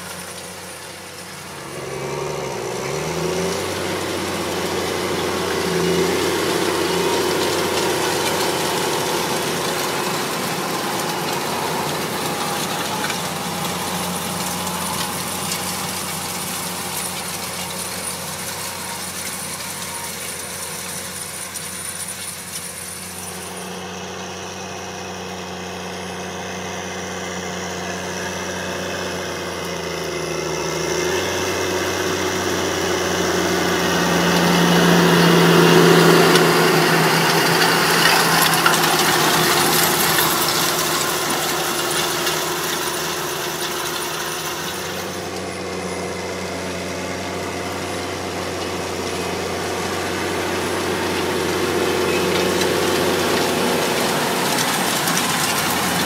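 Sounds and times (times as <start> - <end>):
tractor diesel engine under load: 0.0 - 56.0.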